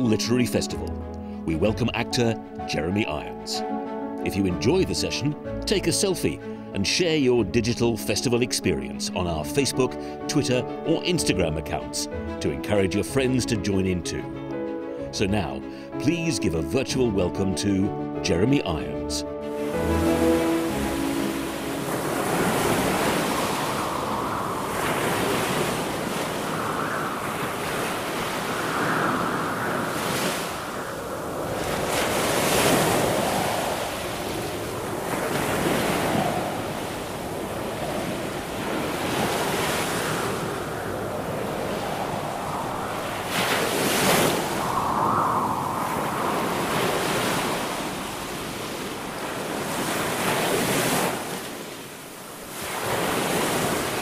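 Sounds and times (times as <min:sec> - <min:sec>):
waves breaking: 0:19.5 - 0:54.0
wind rushing: 0:19.6 - 0:49.8.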